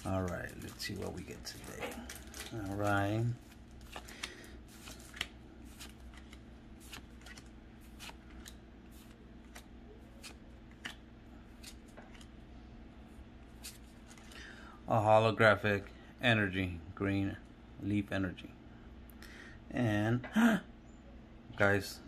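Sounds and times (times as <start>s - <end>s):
cards clicking and sliding: 3.8s - 12.3s.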